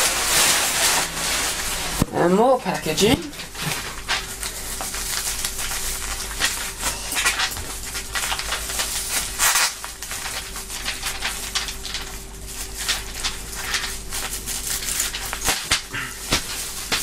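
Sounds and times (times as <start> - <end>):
bubble wrap crinkling: 0.0 - 17.0
scissors cutting plastic: 3.5 - 17.0.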